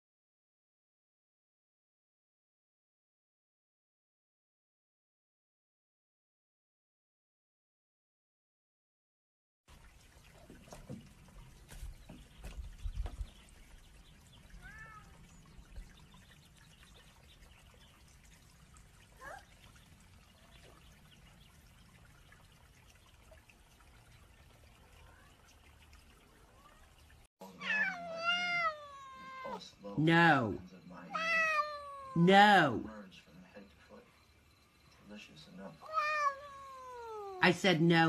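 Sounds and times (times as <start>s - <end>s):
faint water lapping at dock: 9.7s - 38.0s.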